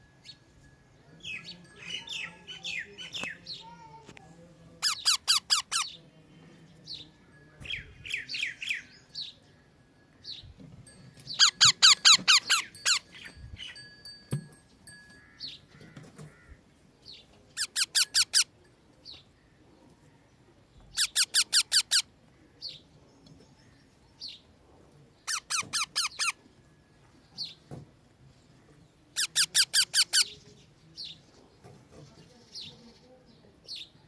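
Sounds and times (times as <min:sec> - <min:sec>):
parakeet shrill call bursts: 0:11.4 - 0:13.1, 0:17.6 - 0:18.5, 0:21.0 - 0:22.1, 0:25.3 - 0:26.4, 0:29.2 - 0:30.2
chick chirping: 0:11.4 - 0:13.4.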